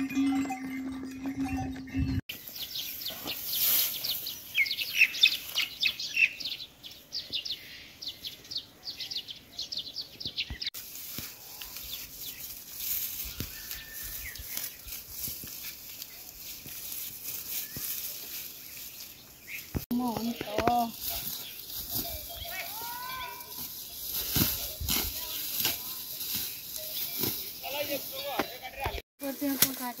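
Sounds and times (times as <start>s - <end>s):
steady ringing tone: 0.0s - 2.3s
small birds chirping: 2.3s - 29.5s.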